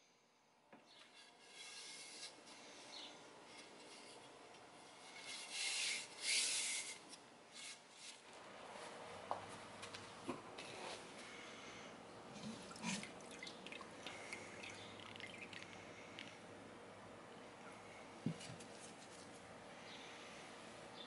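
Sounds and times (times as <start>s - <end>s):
hand tool scraping wood: 1.0s - 4.2s.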